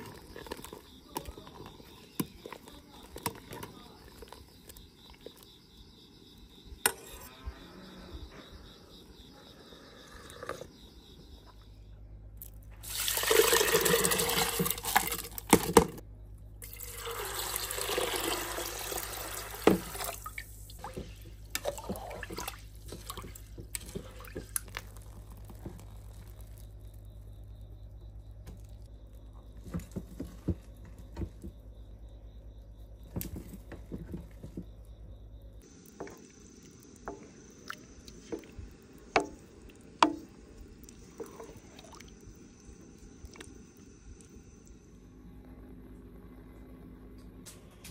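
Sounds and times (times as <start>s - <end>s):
low steady hum: 0.0s - 47.9s
water pouring into pot: 12.8s - 15.8s, 16.6s - 26.6s.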